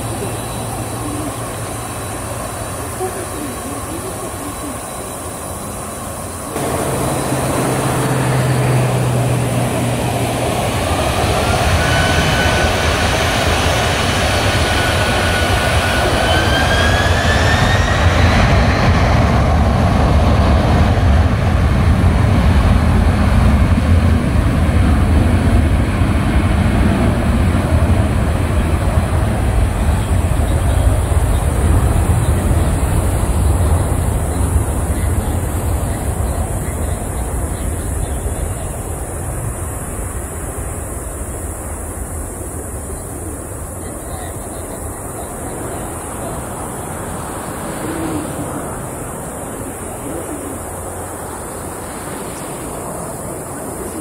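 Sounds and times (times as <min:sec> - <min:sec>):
jet engine roar: 0:00.0 - 0:54.0
jet engines whining: 0:00.0 - 0:54.0.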